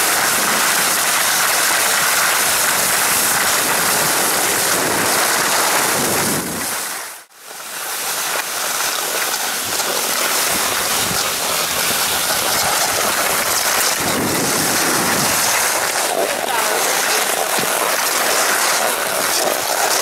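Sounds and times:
wind on microphone: 0.0 - 7.2, 9.6 - 20.0
skis sliding over snow: 0.0 - 20.0.

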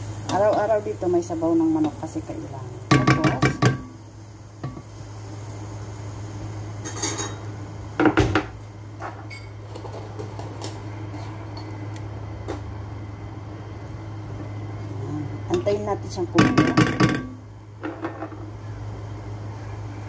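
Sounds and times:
spoon knocking against pot: 2.9 - 3.9, 16.4 - 18.3.

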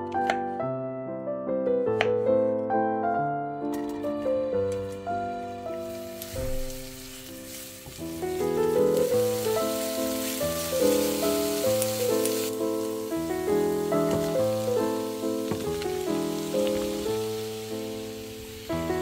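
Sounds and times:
background music: 0.0 - 19.0
onions sizzling in oil: 5.6 - 19.0.

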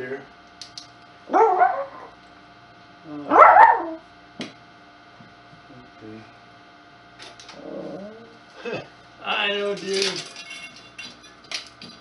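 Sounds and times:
dog bark-whine: 1.3 - 2.2, 3.3 - 4.0.

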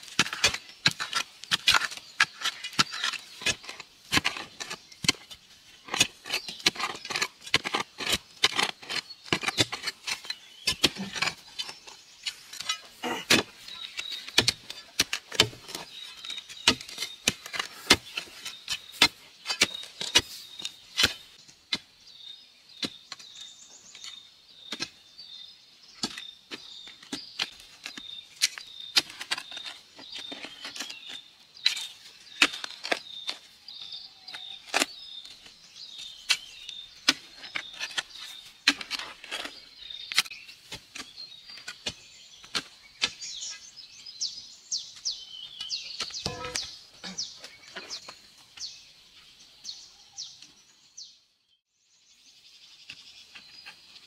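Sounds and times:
metal tools striking stony soil: 0.0 - 21.9, 26.0 - 43.6, 45.6 - 48.8.

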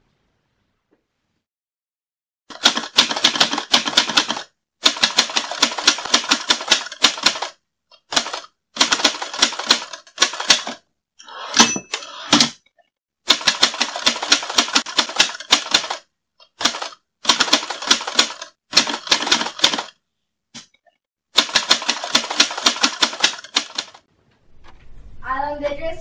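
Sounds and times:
typewriter bell ring: 11.6 - 12.1
typewriter clack: 21.4 - 24.0.

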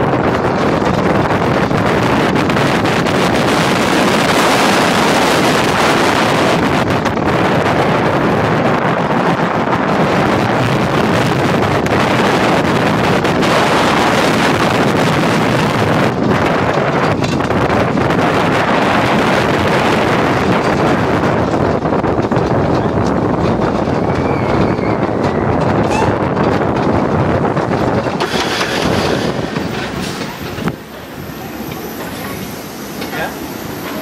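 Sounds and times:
roller coaster train running: 0.0 - 34.0
wind buffeting microphone: 0.0 - 34.0.

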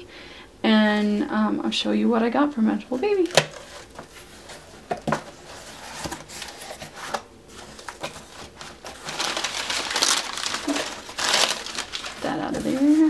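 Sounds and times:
packing paper crinkling: 3.1 - 13.0
cardboard flaps rubbing: 3.5 - 13.0.

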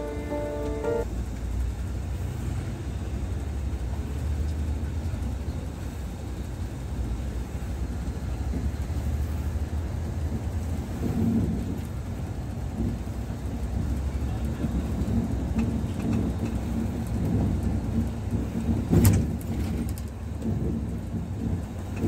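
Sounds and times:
music: 0.0 - 1.1
coach diesel engine rumble: 0.0 - 22.0
road noise: 0.0 - 22.0.

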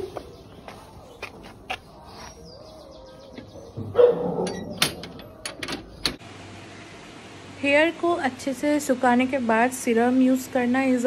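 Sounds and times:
dog yelping: 2.1 - 4.8
metal gate clicks: 4.1 - 6.2.

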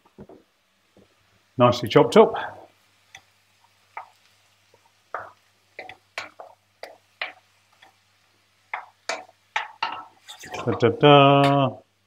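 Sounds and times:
wooden spoon stirring in a pan: 2.4 - 11.6.

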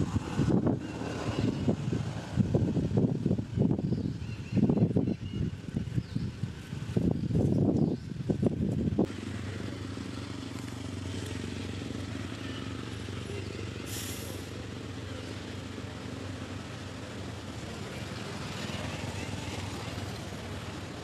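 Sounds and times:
short hiss: 13.9 - 14.5.

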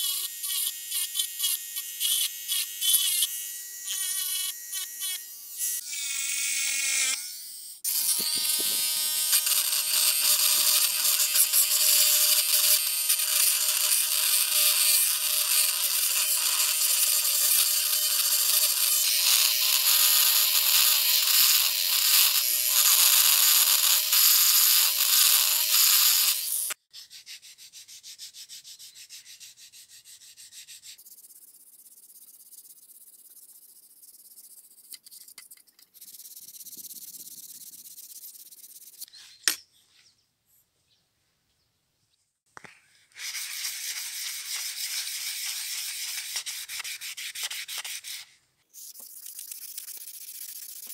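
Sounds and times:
bit grinding on metal: 0.0 - 26.8
rotary tool motor whine: 0.0 - 26.8.

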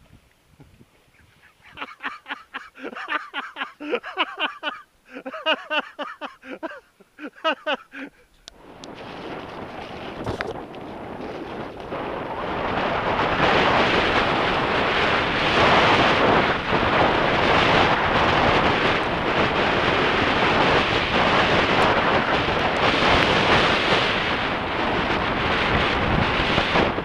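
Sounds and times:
wind buffeting microphone: 0.0 - 2.1, 8.4 - 27.0
bike tyres on dirt trail: 8.5 - 27.0.

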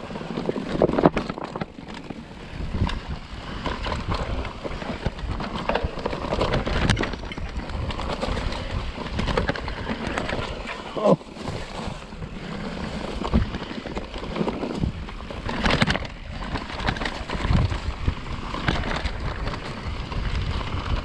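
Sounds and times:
bike clicks and rattles: 0.0 - 21.0
bike tires crunching on dirt: 0.0 - 21.0
wind rumbling on microphone: 0.0 - 21.0.

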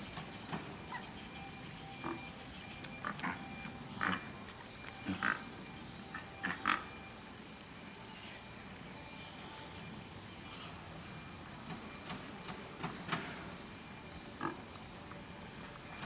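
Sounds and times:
pelicans rough calls: 0.5 - 7.1, 14.4 - 14.7.

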